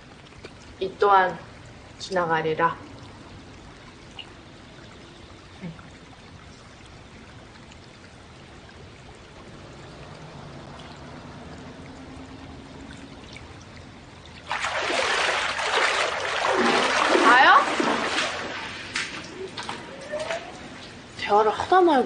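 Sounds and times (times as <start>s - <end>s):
water trickling into pool: 0.0s - 22.0s
water splash: 9.8s - 21.1s.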